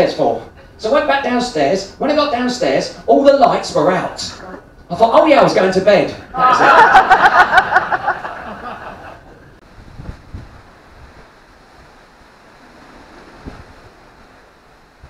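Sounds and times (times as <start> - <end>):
low rush of water: 6.3 - 15.0
audience laughter and applause: 6.4 - 9.6
wind buffeting microphone: 9.2 - 15.0.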